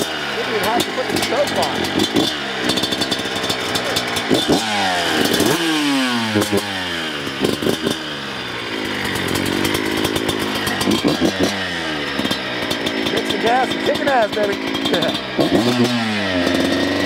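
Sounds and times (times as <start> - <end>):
two-stroke engine revving: 0.0 - 17.0.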